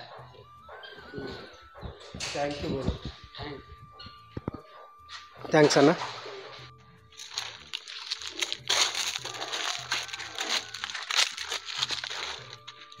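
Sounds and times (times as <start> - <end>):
footsteps on dry leaves: 7.1 - 13.0
hooves crunching on leaves: 7.2 - 13.0.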